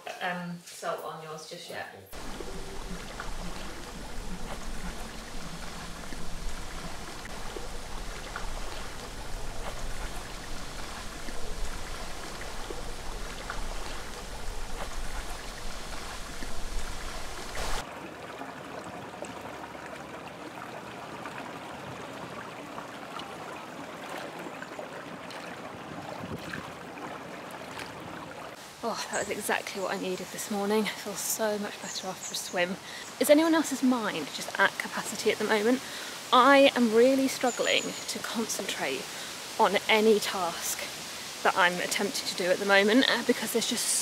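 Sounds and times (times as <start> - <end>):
hot tub jets bubbling: 2.1 - 30.2
pool water splashing and lapping: 2.1 - 44.0
low rumble: 2.2 - 17.8.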